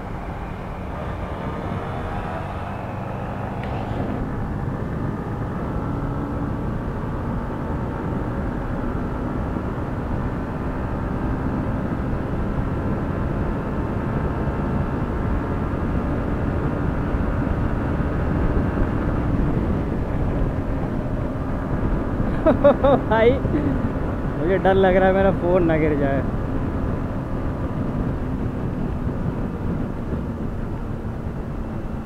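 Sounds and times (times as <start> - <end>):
wind rushing: 0.0 - 6.3
motorcycle engine: 0.0 - 25.2.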